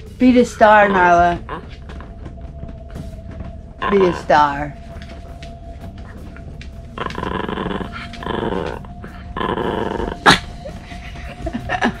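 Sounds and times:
dog grumbling: 0:07.0 - 0:12.0.

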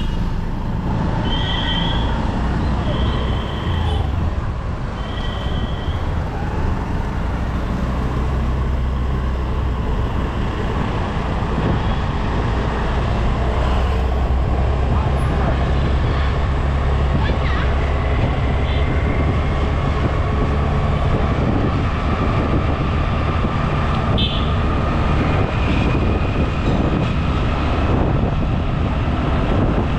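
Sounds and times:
traffic noise: 0:00.0 - 0:29.9
wind noise: 0:00.0 - 0:29.9
vehicle horn toot: 0:24.1 - 0:24.5.

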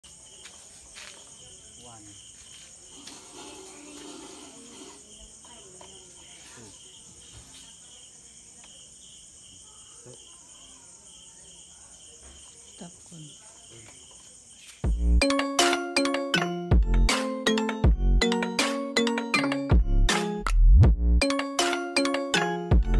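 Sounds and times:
high insect trill: 0:00.0 - 0:16.0
crickets chirping: 0:00.0 - 0:16.6.

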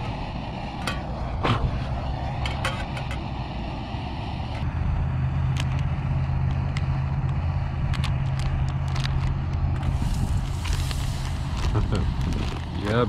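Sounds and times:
camping stove burner rumble: 0:00.0 - 0:13.0
butter sizzling in hot pot: 0:09.8 - 0:13.0.

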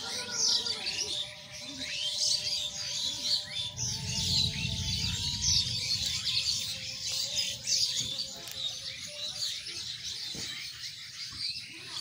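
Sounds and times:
small birds chirping: 0:00.0 - 0:12.0
low rumble: 0:03.4 - 0:07.7.

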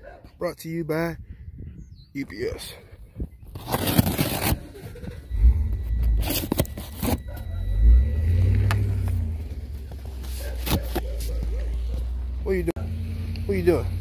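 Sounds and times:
cardboard box scraping and knocking: 0:03.5 - 0:05.0.

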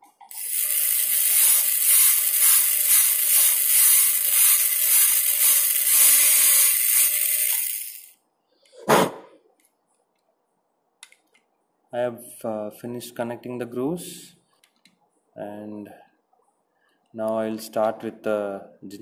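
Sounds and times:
dental drill hissing: 0:00.3 - 0:08.1.

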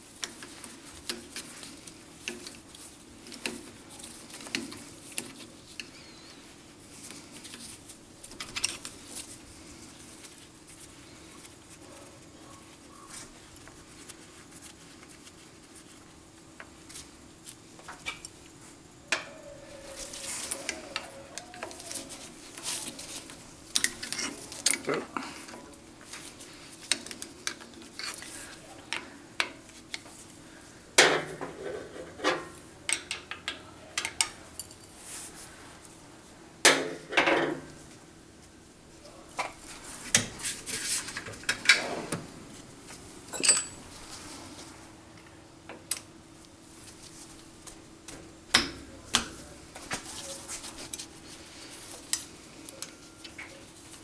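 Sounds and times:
faint steady hum: 0:00.0 - 0:54.0
metal parts clinking: 0:43.3 - 0:43.8.

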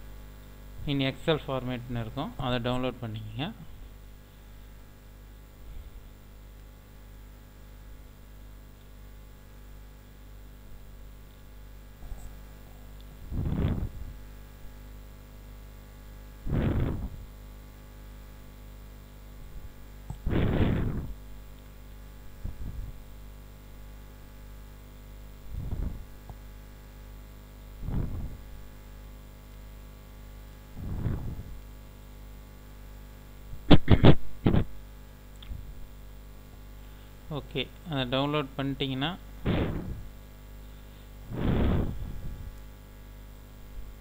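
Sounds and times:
electrical mains hum: 0:00.0 - 0:44.0.

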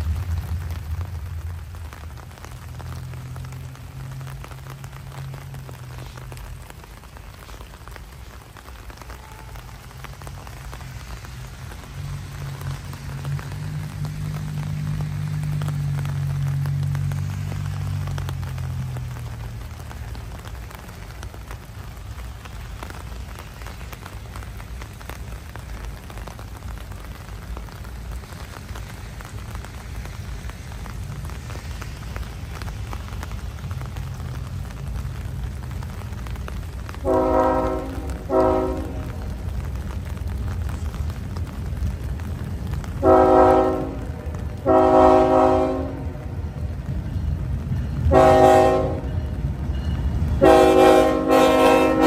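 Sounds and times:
low rumble: 0:00.0 - 0:06.8
steady rain falling: 0:00.0 - 0:52.0.

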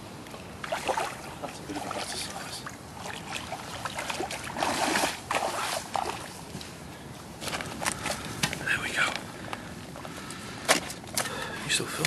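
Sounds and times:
water sloshing and splashing: 0:00.3 - 0:06.8, 0:07.4 - 0:08.6.

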